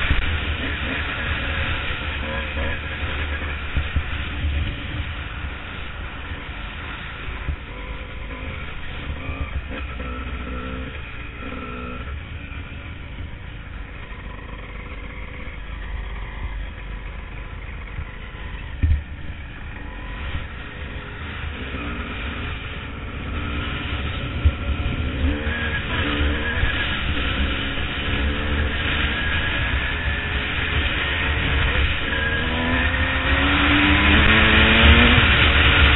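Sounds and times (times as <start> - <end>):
dirt bike engine running: 0.0 - 35.9
wind rumble: 0.0 - 35.9
sharp thump: 18.8 - 19.2.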